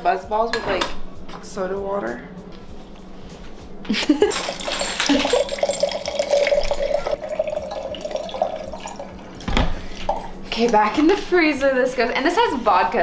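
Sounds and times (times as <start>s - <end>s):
liquid pouring into a glass: 4.4s - 9.4s, 10.0s - 10.4s.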